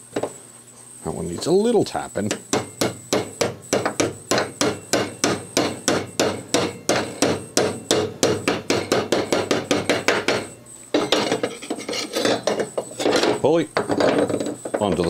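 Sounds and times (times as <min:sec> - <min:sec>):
hammer tapping metal: 0:02.2 - 0:14.1.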